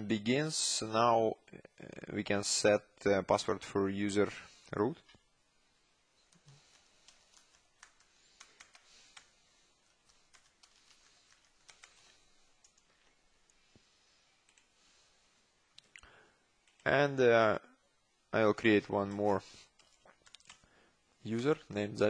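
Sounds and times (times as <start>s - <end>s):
typing on computer keyboard: 6.3s - 12.9s.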